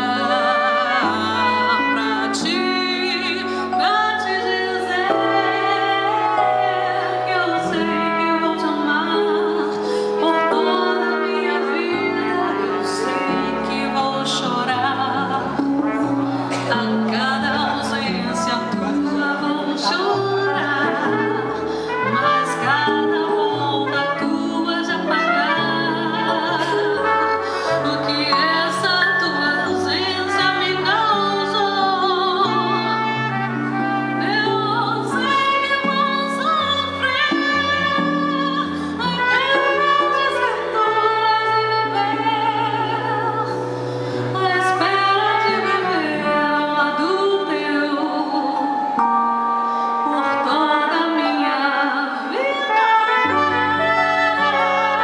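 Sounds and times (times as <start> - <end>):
trumpet playing: 0.0 - 43.6, 48.6 - 55.0
keyboard chords and bass: 0.0 - 45.1, 45.9 - 52.5
woman singing: 0.0 - 49.2, 49.8 - 55.0
electronic keyboard chords: 47.2 - 55.0.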